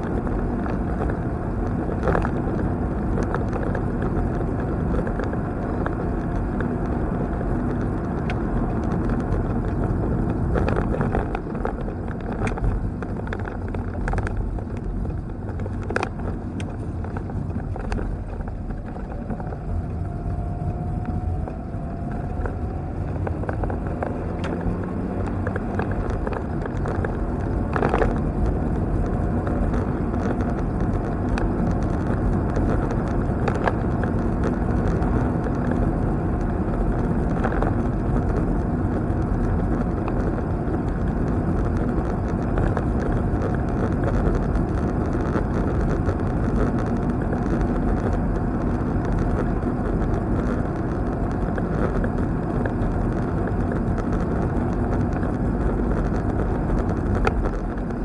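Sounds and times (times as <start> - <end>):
car cabin road rumble: 0.0 - 58.0.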